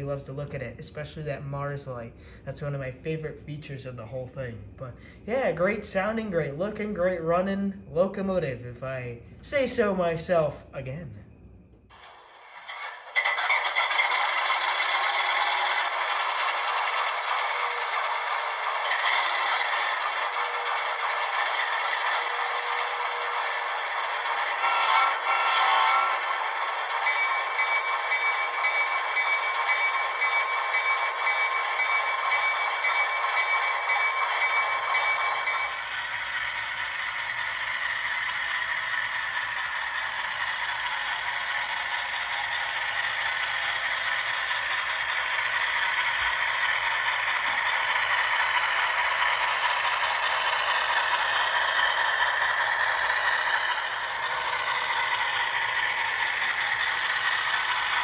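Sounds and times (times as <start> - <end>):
model diesel engine sound: 11.9 - 58.0
model train wheels clattering: 11.9 - 58.0.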